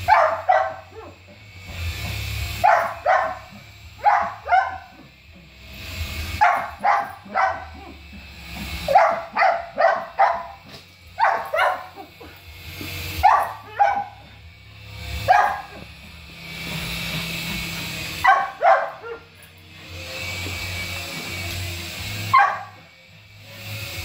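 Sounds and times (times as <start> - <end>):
small dog barking: 0.0 - 1.2, 2.6 - 5.0, 6.4 - 8.0, 8.8 - 12.2, 13.2 - 14.3, 15.2 - 15.8, 18.2 - 19.3, 22.3 - 22.8.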